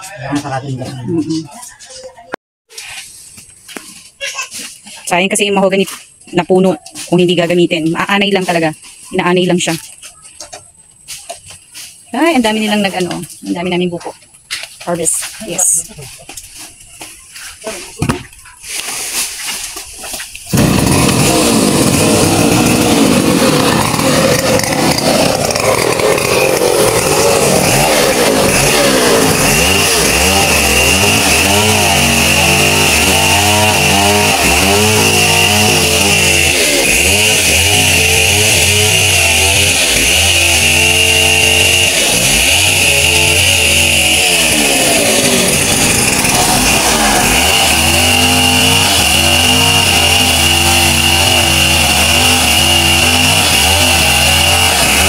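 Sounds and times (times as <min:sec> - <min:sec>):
chainsaw cutting log: 0:15.0 - 0:55.0.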